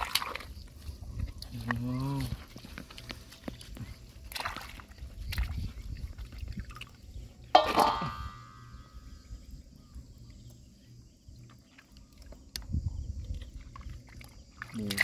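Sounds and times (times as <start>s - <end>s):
hands sloshing in water: 0.0s - 0.8s, 1.4s - 8.0s.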